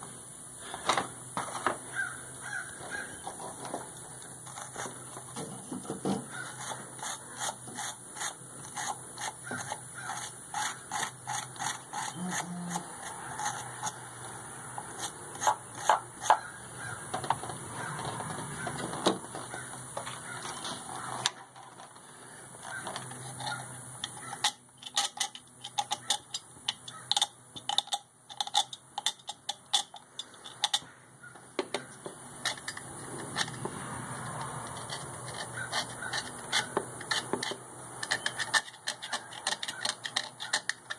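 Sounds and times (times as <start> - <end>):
hand tools scraping metal: 2.8 - 30.9, 31.8 - 40.9.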